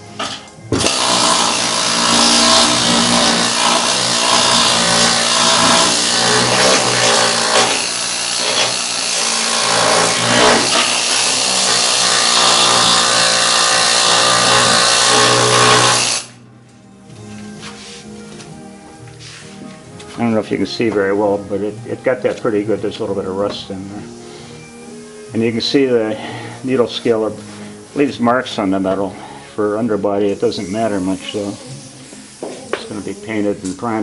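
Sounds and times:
pneumatic needle scaler hammering metal: 0:00.2 - 0:16.4.

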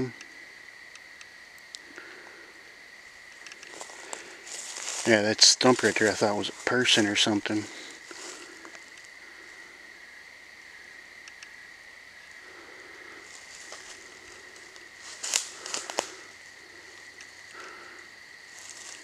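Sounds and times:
crickets trilling: 0:00.0 - 0:19.0
crackles on dry leaves: 0:03.0 - 0:09.6, 0:12.4 - 0:19.0.

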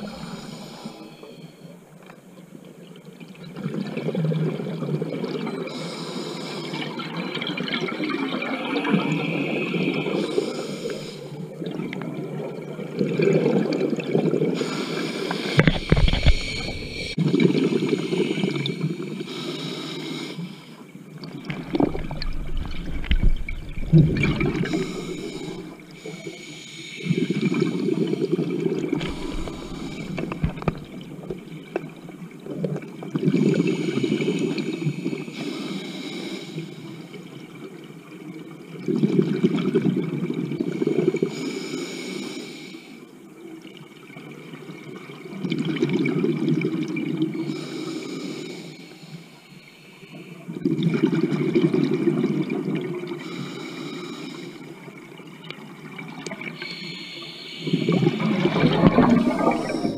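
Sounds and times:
diver exhaling bubbles: 0:15.4 - 0:18.0, 0:21.3 - 0:26.0, 0:27.5 - 0:32.0, 0:57.6 - 0:59.9
regulator inhales: 0:24.4 - 0:27.3, 0:29.0 - 0:31.4, 0:56.6 - 0:58.3.

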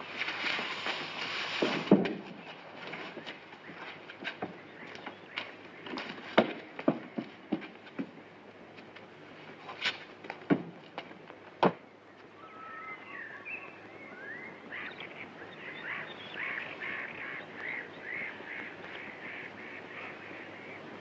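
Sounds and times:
sliding animal calls: 0:00.0 - 0:06.4.

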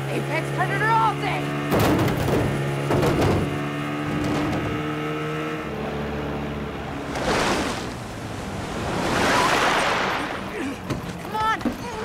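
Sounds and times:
rushing wind: 0:06.8 - 0:10.9
rushing water: 0:06.9 - 0:11.2.

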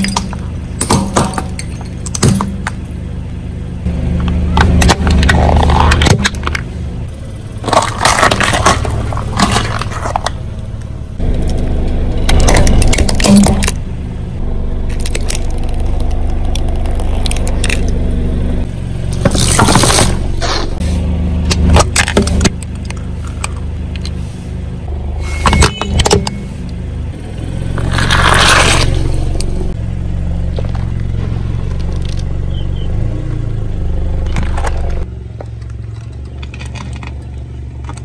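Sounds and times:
low engine hum: 0:00.0 - 0:38.0
tyre crushing small objects: 0:04.2 - 0:06.7, 0:07.6 - 0:13.8, 0:14.9 - 0:18.0, 0:19.1 - 0:20.7, 0:21.5 - 0:24.2, 0:27.8 - 0:29.5, 0:34.2 - 0:38.0.

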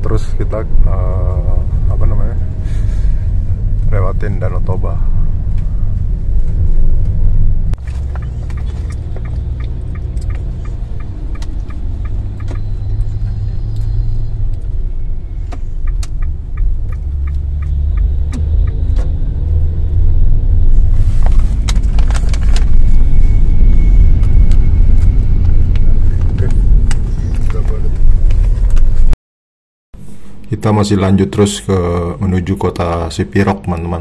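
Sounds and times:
car road and engine rumble: 0:00.0 - 0:29.2
turn signal ticking: 0:06.5 - 0:20.9.

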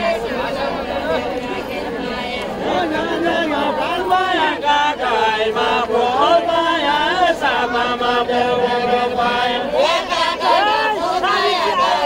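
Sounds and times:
voices singing folk song: 0:00.0 - 0:12.0.

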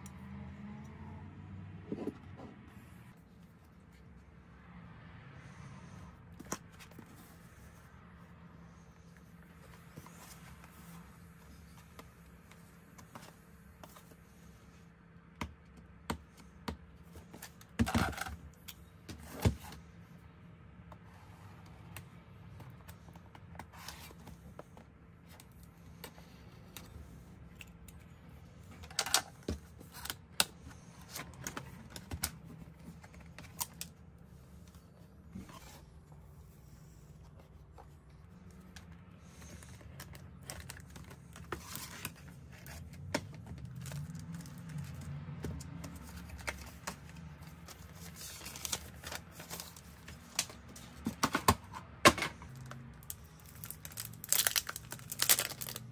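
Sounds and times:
plastic wrap rustling: 0:53.0 - 0:55.9.

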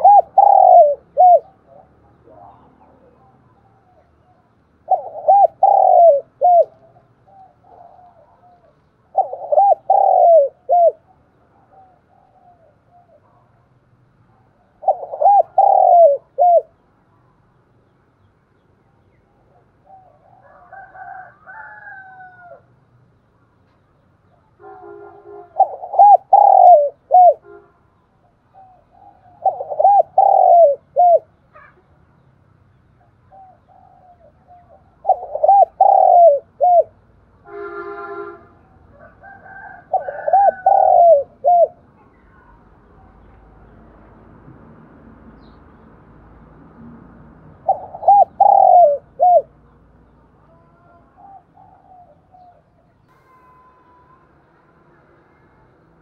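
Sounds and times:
dove cooing: 0:00.0 - 0:13.6, 0:14.3 - 0:16.8, 0:19.4 - 0:22.7, 0:25.3 - 0:27.6, 0:28.5 - 0:31.8, 0:33.0 - 0:37.0, 0:38.9 - 0:41.8, 0:47.5 - 0:49.6, 0:50.4 - 0:53.1.

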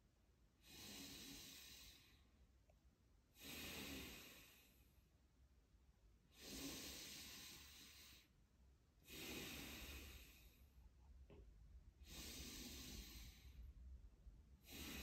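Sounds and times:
slow deep breaths: 0:00.6 - 0:02.4, 0:03.3 - 0:05.1, 0:06.3 - 0:08.4, 0:09.0 - 0:15.0.

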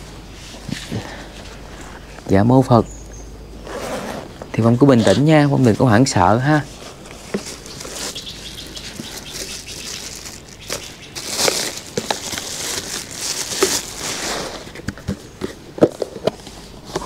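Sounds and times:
plastic bag rustling: 0:03.7 - 0:15.7.

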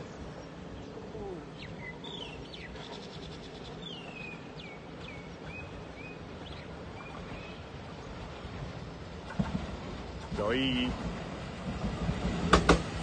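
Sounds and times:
small birds chirping: 0:00.0 - 0:08.3.

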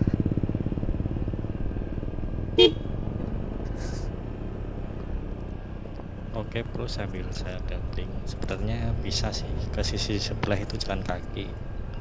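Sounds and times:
scooter engine cruising: 0:00.0 - 0:12.0
short horn beep: 0:02.6 - 0:02.9.

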